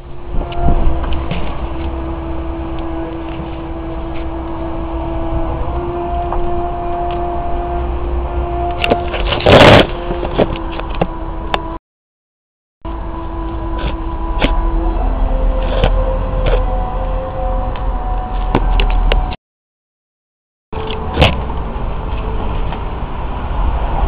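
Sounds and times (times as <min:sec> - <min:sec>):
low street rumble: 0:00.0 - 0:11.8, 0:12.9 - 0:19.4, 0:20.8 - 0:24.0
steady hum: 0:00.0 - 0:11.8.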